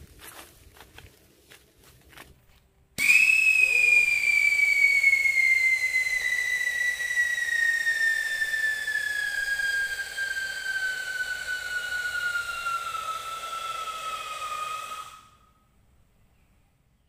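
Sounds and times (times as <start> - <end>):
firecracker whistling: 3.0 - 15.6.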